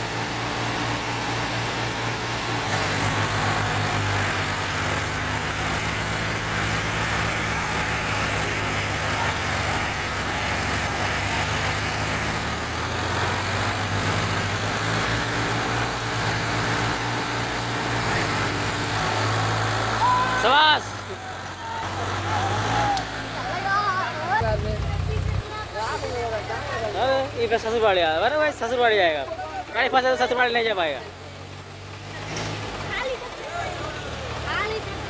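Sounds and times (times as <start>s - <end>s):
diesel tractor engine under load: 0.0s - 35.0s.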